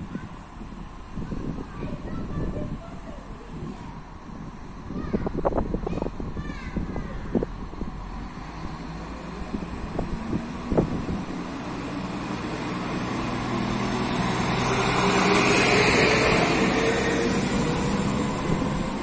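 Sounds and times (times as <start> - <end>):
diesel railcar passing: 7.2 - 19.0
rising whine: 12.2 - 19.0.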